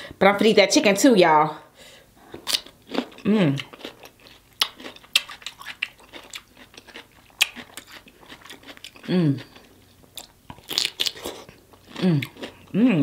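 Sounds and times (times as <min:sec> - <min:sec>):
wet mouth clicks and chewing: 0:02.4 - 0:12.7
person humming mm: 0:03.2 - 0:03.7, 0:09.1 - 0:09.5, 0:12.0 - 0:13.0
crunching bite into cucumber: 0:10.2 - 0:12.6.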